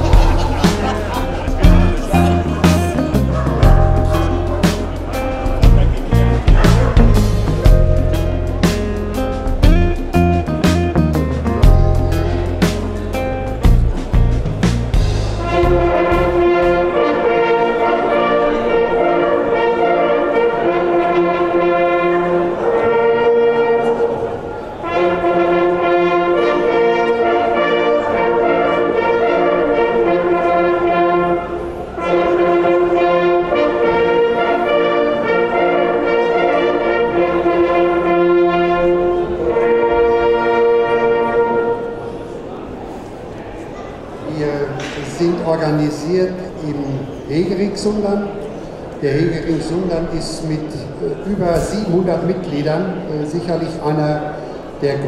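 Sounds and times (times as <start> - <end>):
hunting horns playing chords: 0.0 - 42.7.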